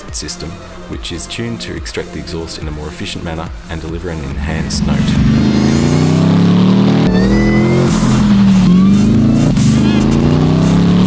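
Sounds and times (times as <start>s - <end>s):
car engine revving hard: 4.2s - 11.0s.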